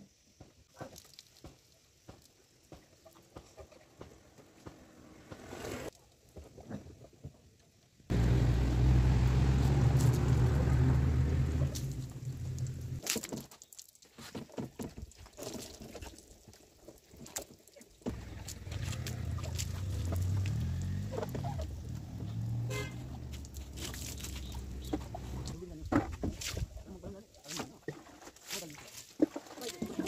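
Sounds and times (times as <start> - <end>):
water splashing over scooter: 8.2 - 13.4, 18.1 - 25.6
water dripping: 8.2 - 14.1, 15.2 - 25.6.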